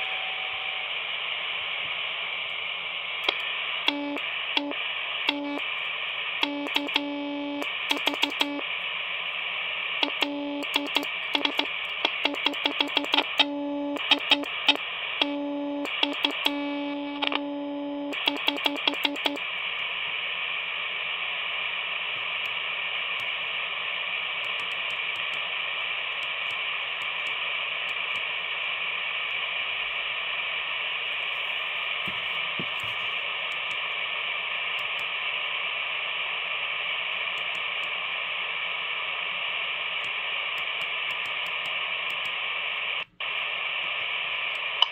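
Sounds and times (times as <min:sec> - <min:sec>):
radio sidetone beep: 0:00.0 - 0:01.0, 0:03.3 - 0:05.7, 0:06.4 - 0:08.6, 0:10.0 - 0:19.4
receiver static hiss: 0:00.0 - 0:44.9
sharp clicks: 0:06.4 - 0:08.6, 0:10.0 - 0:19.4, 0:40.0 - 0:42.4.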